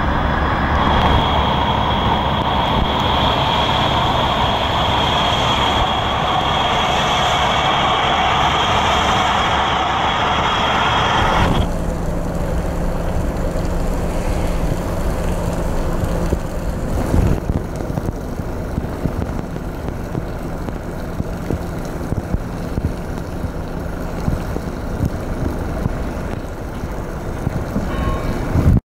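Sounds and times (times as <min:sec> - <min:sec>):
boat engine whine: 0:00.0 - 0:28.8
distant boat engine rumble: 0:00.0 - 0:28.8.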